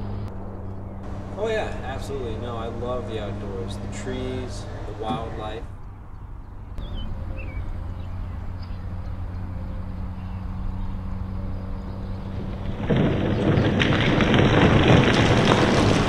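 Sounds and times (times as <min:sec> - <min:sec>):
steady low hum: 0:00.0 - 0:12.7
rockslide crash: 0:12.3 - 0:16.0
rock hits clattering: 0:12.5 - 0:16.0.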